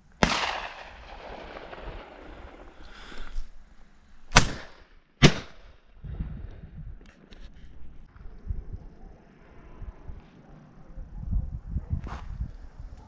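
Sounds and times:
shotgun shots: 0.2 - 2.8, 4.3 - 5.7.

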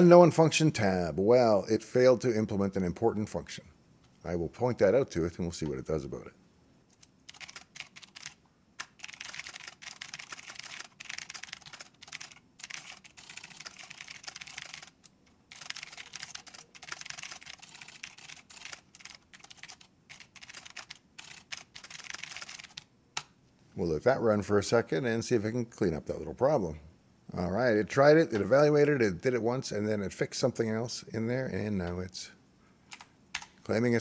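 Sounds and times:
keyboard typing: 6.9 - 23.3, 32.9 - 33.6.

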